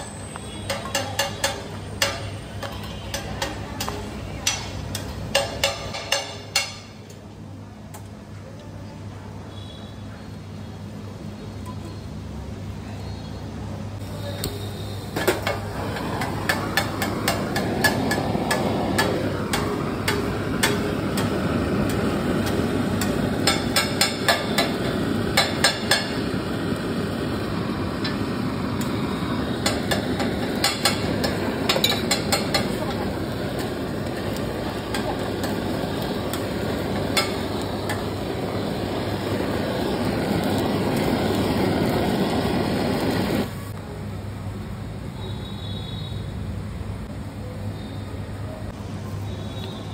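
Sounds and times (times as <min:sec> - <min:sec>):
metal utensils clanking on griddle: 0:00.5 - 0:07.1, 0:15.2 - 0:26.8, 0:28.0 - 0:41.0
steady rushing noise: 0:15.8 - 0:43.5.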